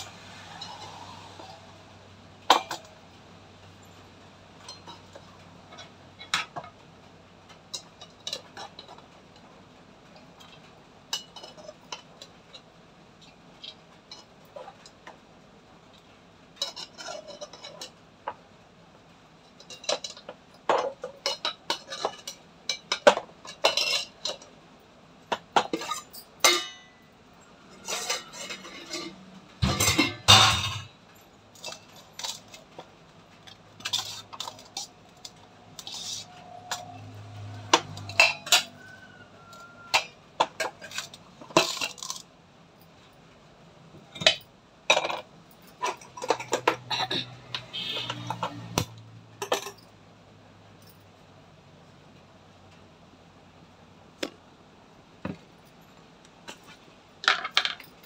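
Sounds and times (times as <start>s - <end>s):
metal pots and lids clinking: 0.0s - 6.8s, 7.5s - 9.5s, 10.1s - 15.2s, 16.6s - 18.5s, 19.4s - 24.6s, 25.2s - 42.3s, 44.0s - 49.9s, 56.5s - 58.0s.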